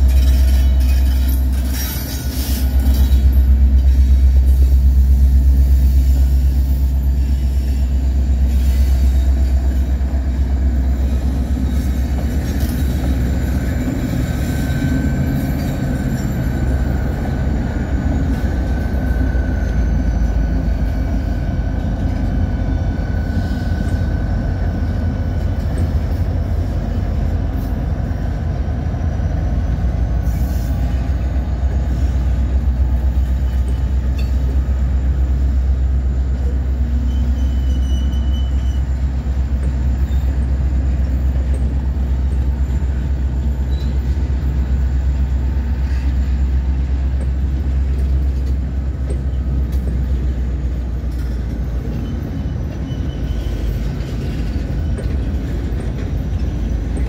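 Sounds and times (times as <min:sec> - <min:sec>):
locomotive engine rumble: 0:00.0 - 0:57.0
high thin squeal: 0:05.9 - 0:09.8, 0:37.0 - 0:39.1.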